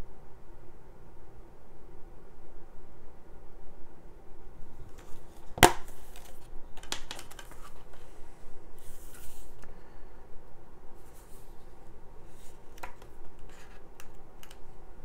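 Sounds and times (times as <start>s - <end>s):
paper rustling: 4.8s - 8.2s, 8.8s - 9.6s, 11.0s - 14.6s
plastic case clicking: 4.9s - 7.8s.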